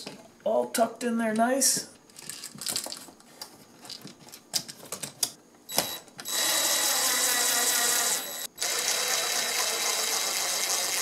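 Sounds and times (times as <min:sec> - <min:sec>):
cordless drill running: 0:05.7 - 0:11.0.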